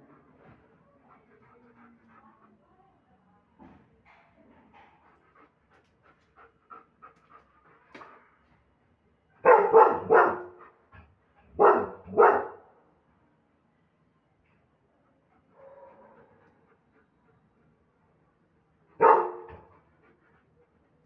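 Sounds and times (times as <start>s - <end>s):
dog barking loudly: 9.4s - 10.6s, 11.6s - 12.6s, 19.0s - 19.6s.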